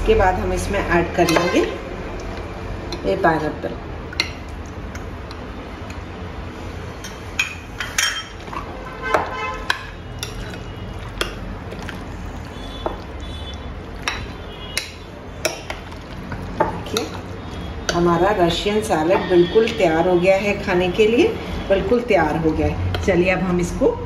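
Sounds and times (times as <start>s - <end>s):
spoon stirring thick salad: 7.8s - 20.2s.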